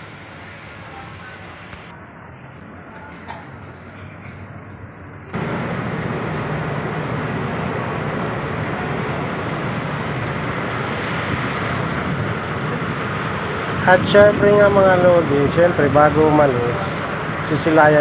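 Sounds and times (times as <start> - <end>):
ship engine drone: 3.8 - 18.0
wind rushing: 5.4 - 17.6
churning water: 5.4 - 18.0.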